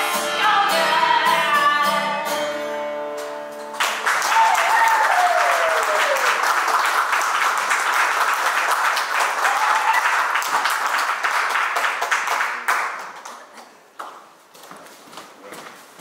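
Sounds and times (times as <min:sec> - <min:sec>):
audience applauding: 0:03.8 - 0:14.2.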